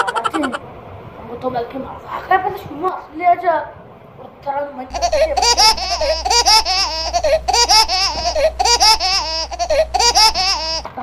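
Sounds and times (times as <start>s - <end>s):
high-pitched laughter: 0.0s - 0.6s, 4.9s - 10.9s
steady low hum: 0.0s - 1.2s, 4.9s - 11.0s.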